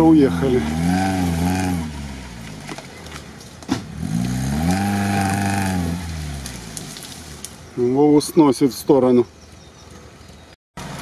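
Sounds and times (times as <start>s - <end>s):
car engine revving under load: 0.2s - 7.5s.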